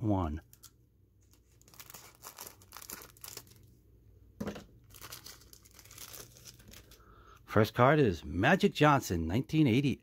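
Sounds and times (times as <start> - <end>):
plastic wrapper crinkling and tearing: 0.4 - 3.8, 4.8 - 7.0.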